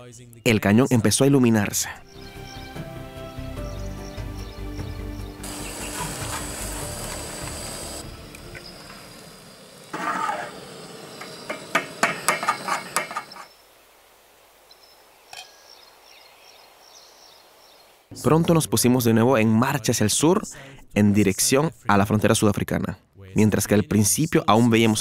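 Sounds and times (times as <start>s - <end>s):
background music: 0.0s - 9.4s.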